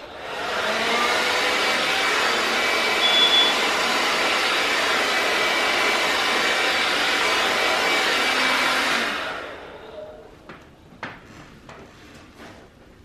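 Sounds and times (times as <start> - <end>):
hair dryer blowing: 0.0 - 10.2
brief high whistle: 3.0 - 3.6.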